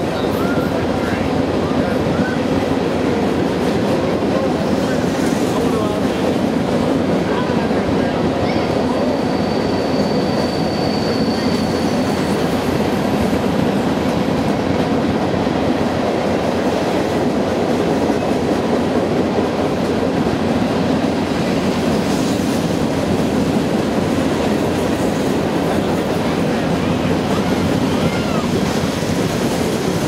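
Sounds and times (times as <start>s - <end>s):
high wheel squeal: 8.4s - 12.6s
freight train wheels clattering: 9.3s - 30.0s.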